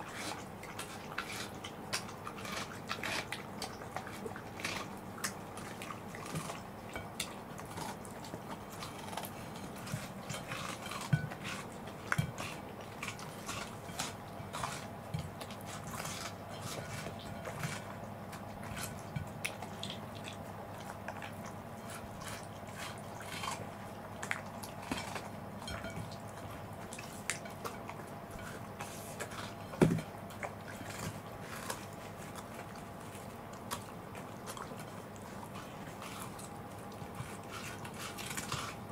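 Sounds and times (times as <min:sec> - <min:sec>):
dogs chewing and slurping: 0:00.0 - 0:38.9.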